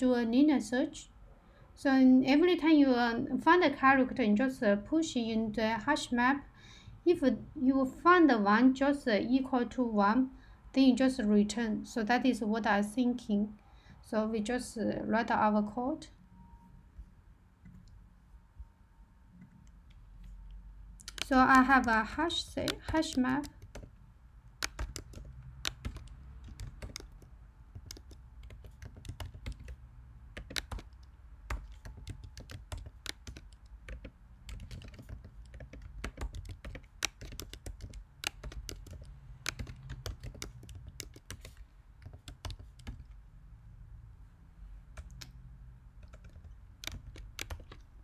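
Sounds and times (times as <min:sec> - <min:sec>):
typing on computer keyboard: 0:21.0 - 0:43.2, 0:45.0 - 0:45.4, 0:46.0 - 0:48.0.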